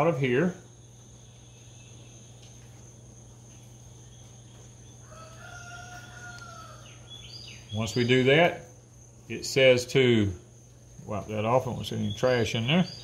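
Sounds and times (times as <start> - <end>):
steady low hum: 0.0 - 13.0
rooster crowing: 4.8 - 7.5.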